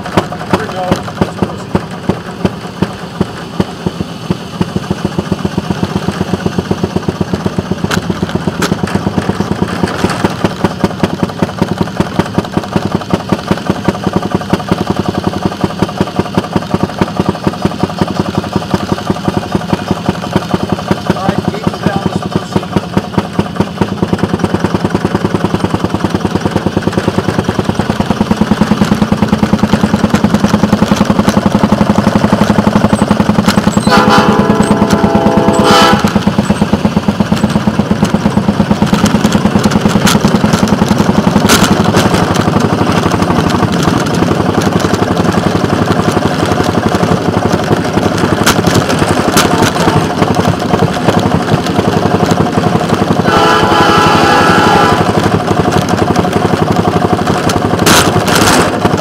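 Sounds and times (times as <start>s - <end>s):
small gasoline engine running: 0.0s - 59.0s
horn sounding: 33.8s - 36.2s, 53.2s - 55.2s.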